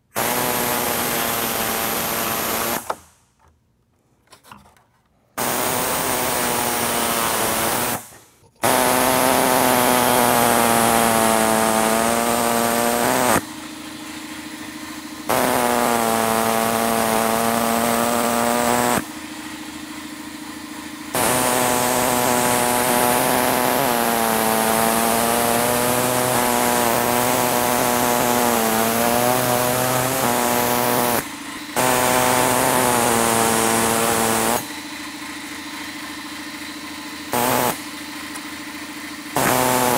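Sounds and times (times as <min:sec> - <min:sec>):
reciprocating saw cutting plastic: 0:00.0 - 0:03.1, 0:05.4 - 0:13.5, 0:15.2 - 0:19.1, 0:21.1 - 0:34.8, 0:37.3 - 0:37.8, 0:39.3 - 0:39.9.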